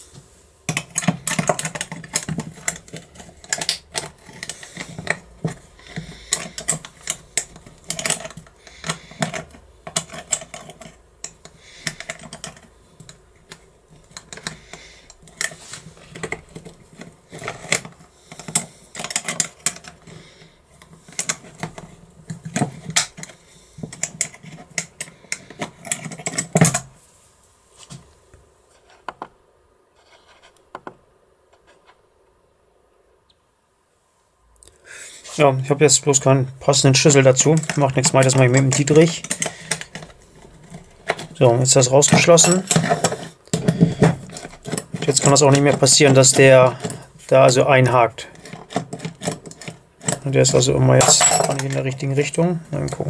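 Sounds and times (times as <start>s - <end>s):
keys rattling in a lock: 6.0s - 13.2s, 37.3s - 43.7s, 48.4s - 53.0s.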